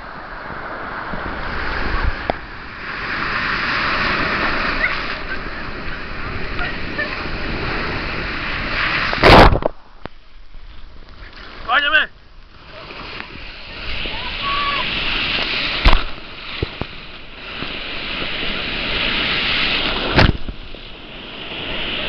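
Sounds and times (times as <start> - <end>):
sea surf breaking: 0.0 - 10.0, 10.6 - 22.0
loud sudden splash: 7.4 - 9.8, 12.7 - 20.8.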